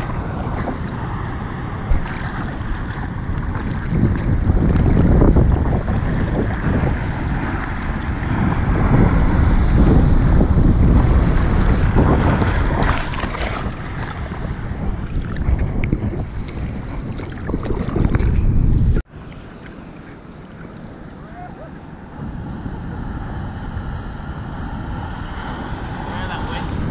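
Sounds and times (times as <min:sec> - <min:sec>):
wind buffeting microphone: 0:00.0 - 0:19.1, 0:20.2 - 0:26.9
surf hiss: 0:02.9 - 0:13.5, 0:20.8 - 0:26.9.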